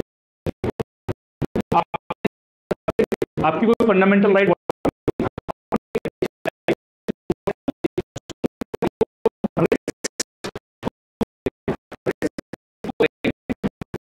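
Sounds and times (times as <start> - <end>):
man lecturing stuttering: 3.4 - 4.6, 9.6 - 9.9, 13.0 - 13.4.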